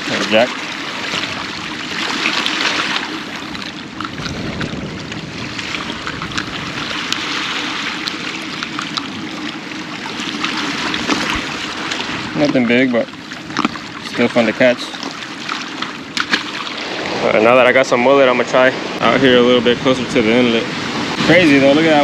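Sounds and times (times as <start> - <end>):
water washing against rocks: 0.0 - 17.9
wind buffeting microphone: 0.8 - 14.3.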